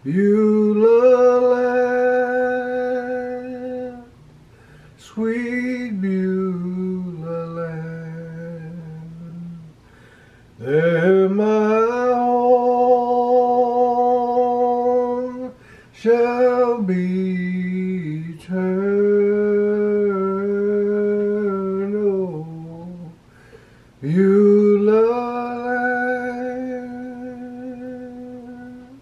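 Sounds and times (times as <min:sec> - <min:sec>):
man singing unaccompanied: 0:00.0 - 0:04.4, 0:05.0 - 0:09.9, 0:10.6 - 0:23.3, 0:24.0 - 0:29.0.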